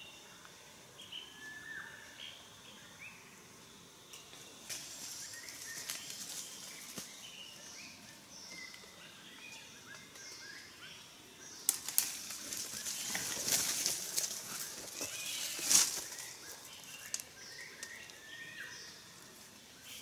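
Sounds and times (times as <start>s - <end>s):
footsteps through dry leaves: 11.8s - 17.3s.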